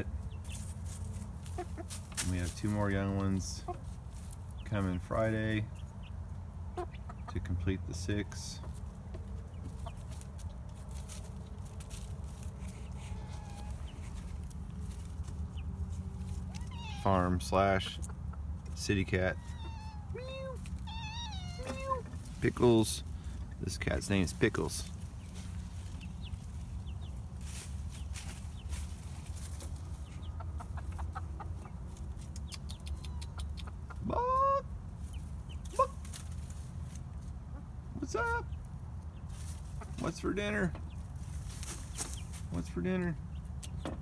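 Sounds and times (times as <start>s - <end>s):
chickens clucking softly: 0.0s - 22.8s, 27.9s - 36.3s, 37.2s - 42.5s
steady low rumble: 0.0s - 39.8s
faint short chicken calls: 12.6s - 14.3s, 16.4s - 17.4s, 19.2s - 22.2s.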